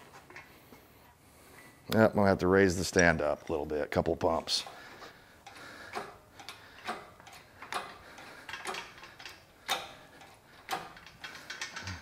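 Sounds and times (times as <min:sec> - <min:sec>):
hydraulic hoist pump clicking: 0:05.4 - 0:12.0.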